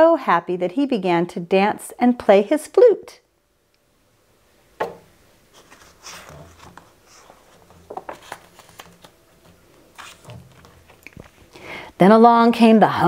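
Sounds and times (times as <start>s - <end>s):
book pages rustling: 5.5s - 11.6s.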